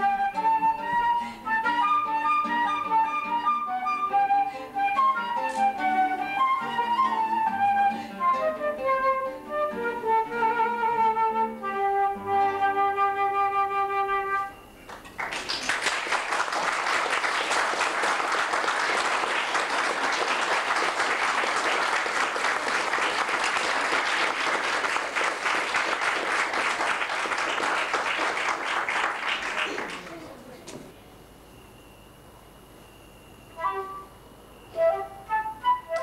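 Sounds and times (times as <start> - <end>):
flute playing: 0.0 - 14.8, 33.5 - 36.0
audience applause: 14.9 - 30.4.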